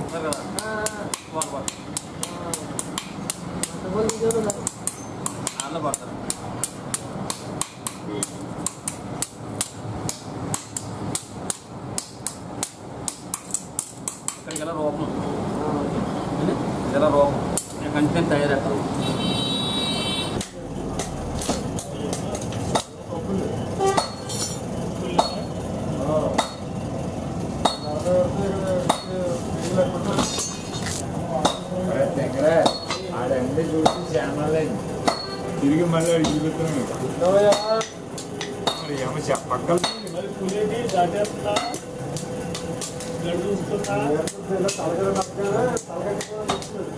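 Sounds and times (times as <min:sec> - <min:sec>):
hammer striking blade on anvil: 0:00.0 - 0:14.6, 0:23.9 - 0:24.6, 0:25.2 - 0:25.5, 0:26.4 - 0:26.6, 0:27.6 - 0:28.0, 0:28.8 - 0:29.2, 0:32.6 - 0:33.1, 0:35.0 - 0:35.4, 0:37.5 - 0:41.9.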